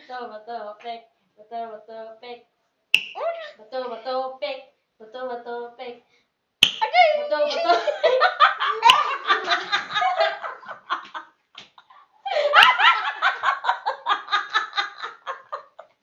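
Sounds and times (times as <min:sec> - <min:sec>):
girls laughing hard: 0:06.8 - 0:16.0.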